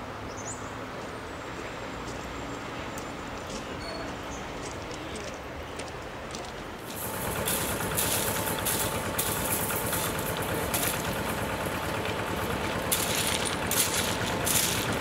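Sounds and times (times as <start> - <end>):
hiss: 6.8 - 11.8
small engine idling: 6.8 - 15.0.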